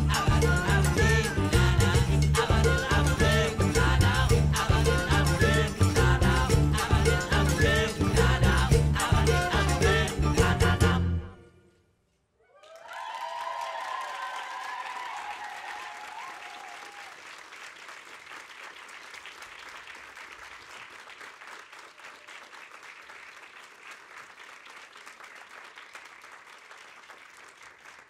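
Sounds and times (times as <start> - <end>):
audience applauding: 12.6 - 28.0.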